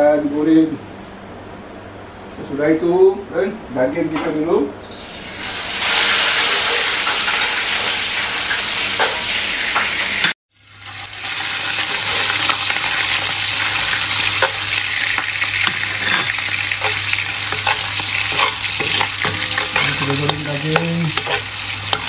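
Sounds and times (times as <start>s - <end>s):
meat sizzling in hot oil: 4.9s - 22.0s
spatula stirring and scraping: 11.8s - 22.0s.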